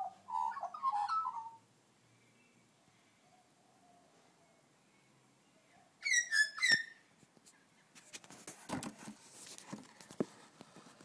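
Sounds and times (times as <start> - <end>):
magpie fluting song: 0.0 - 1.6, 6.0 - 7.0.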